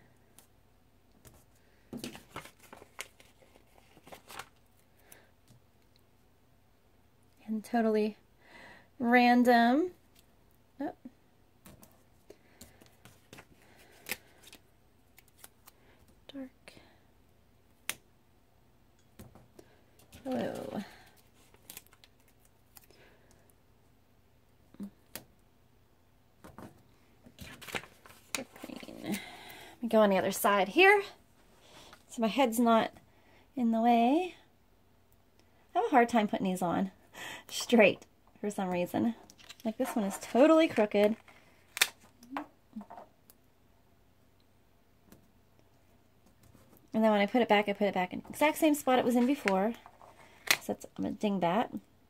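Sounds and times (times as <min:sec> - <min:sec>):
paper crinkling and clicks: 0:02.0 - 0:04.6, 0:27.4 - 0:28.9.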